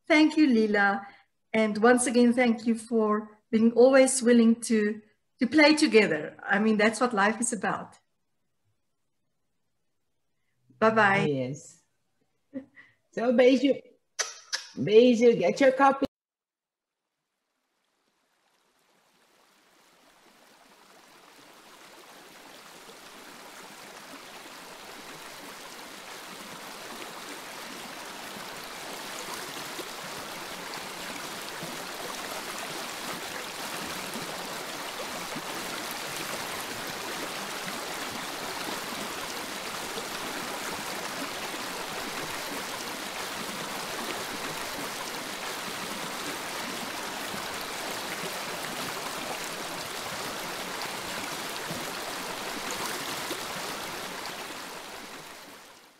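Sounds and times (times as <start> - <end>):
flowing water rushing: 17.8 - 55.9.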